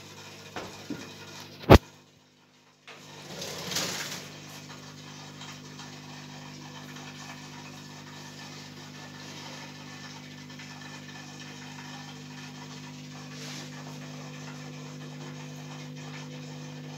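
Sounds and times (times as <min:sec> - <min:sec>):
aquarium pump humming: 0:00.0 - 0:16.9.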